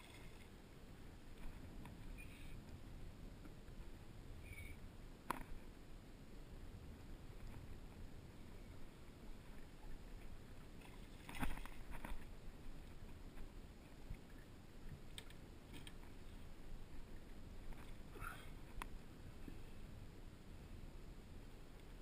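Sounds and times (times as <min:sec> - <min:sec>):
low water noise: 0:00.0 - 0:22.0.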